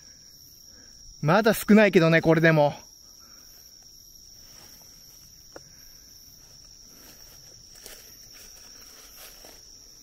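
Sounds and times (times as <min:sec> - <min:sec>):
night insects trilling: 0:00.0 - 0:10.0
soft rustle: 0:04.3 - 0:10.0.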